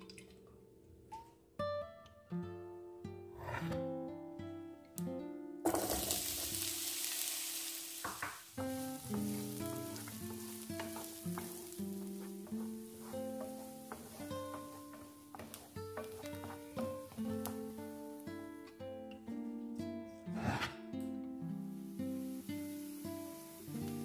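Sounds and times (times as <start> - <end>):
plucked guitar music: 0.0 - 24.0
onion sizzling in frying pan: 5.6 - 19.2, 21.4 - 24.0
wooden spatula stirring: 8.0 - 18.2.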